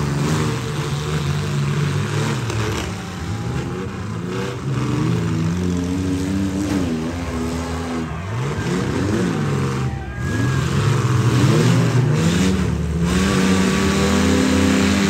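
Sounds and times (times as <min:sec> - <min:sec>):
engines revving hard: 0:00.0 - 0:15.0.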